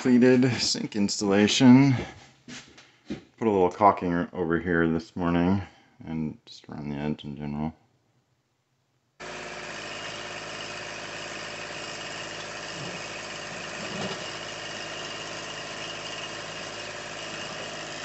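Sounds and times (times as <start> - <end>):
tractor diesel engine running: 9.2 - 18.0.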